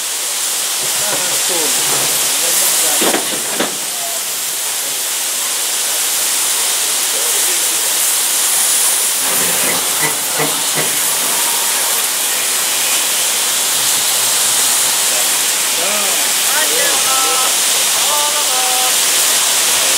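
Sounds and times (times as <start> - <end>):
steam locomotive hissing: 0.0 - 19.9.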